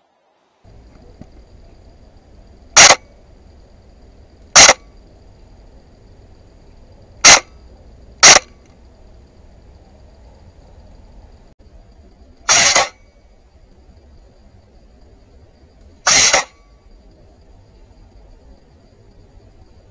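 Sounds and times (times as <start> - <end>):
airsoft gun shots: 4.6 - 4.8, 7.2 - 7.5, 8.2 - 8.5, 16.1 - 16.5.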